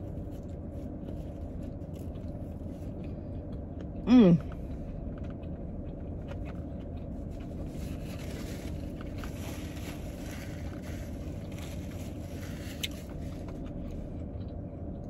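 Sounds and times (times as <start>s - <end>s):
car cabin rumble: 0.0s - 15.0s
person chewing: 0.0s - 15.0s
paper wrapper rustling: 7.7s - 13.6s.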